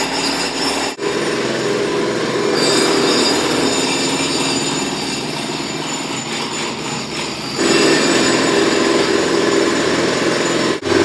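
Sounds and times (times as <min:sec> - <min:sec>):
jackhammer rattling: 0:02.6 - 0:11.0.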